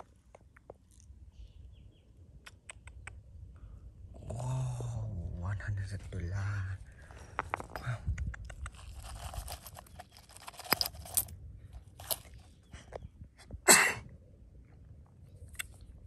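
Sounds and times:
soil crunching: 6.0 - 12.8
coins clinking onto gravel: 8.7 - 12.5.

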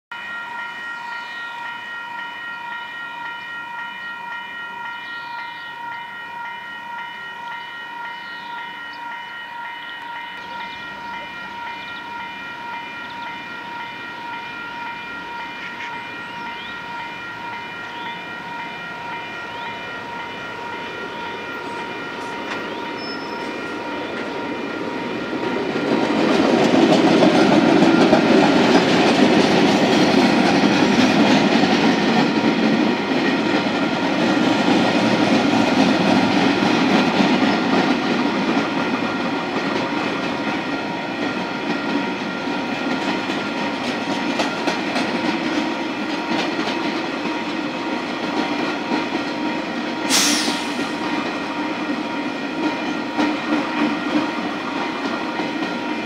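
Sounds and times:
level crossing warning bell: 0.1 - 50.0, 50.8 - 56.0
freight train engine and wheels: 0.1 - 56.0.

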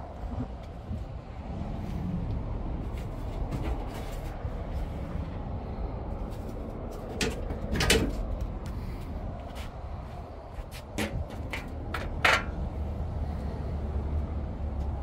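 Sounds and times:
low handling rumble: 0.0 - 15.0.

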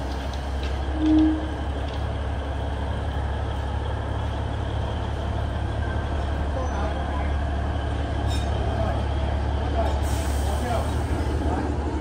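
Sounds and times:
diesel locomotive engine drone: 0.0 - 12.0
brief tone: 0.9 - 1.5.

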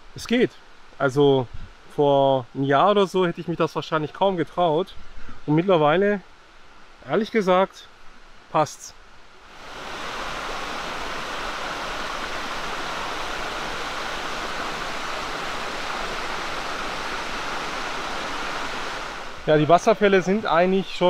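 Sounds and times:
waterfall rushing: 9.4 - 21.0.

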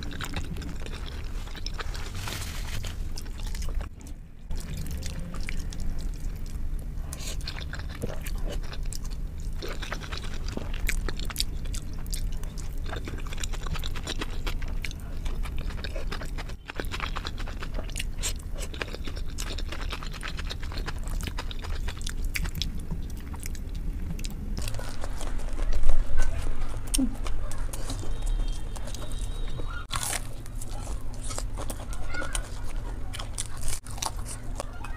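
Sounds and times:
chewing and wet mouth clicks: 0.0 - 2.0, 3.2 - 34.9
low steady hum: 0.0 - 34.9.

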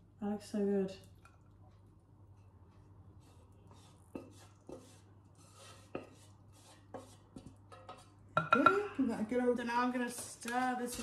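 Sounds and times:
faint rubbing and scraping: 3.2 - 8.2.

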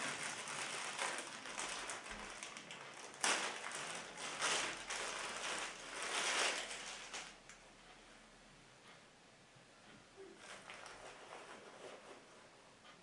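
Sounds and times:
plastic bag crinkling: 0.0 - 7.4.

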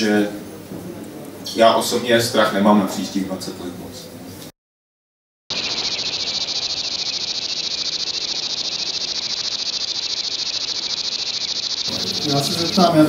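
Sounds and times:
cricket chirping: 5.5 - 13.0.

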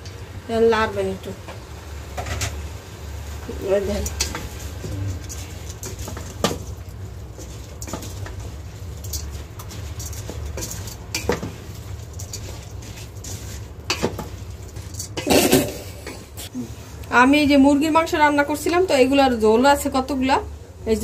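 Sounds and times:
spatula scraping in pot: 3.7 - 16.5.

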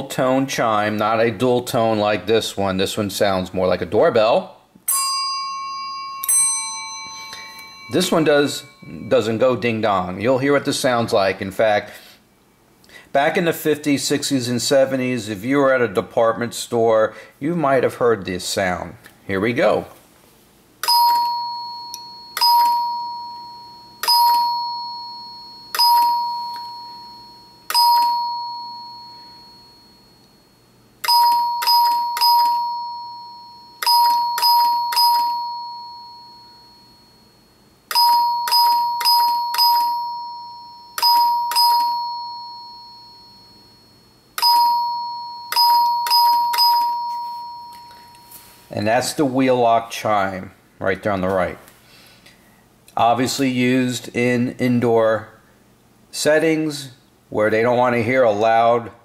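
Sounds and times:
telephone chime ringing: 4.9 - 10.1, 20.8 - 48.7.

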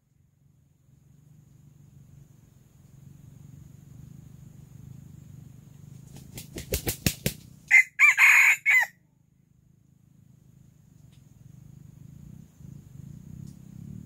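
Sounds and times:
rooster wings flapping: 5.9 - 8.6
rooster crowing: 7.7 - 9.0.

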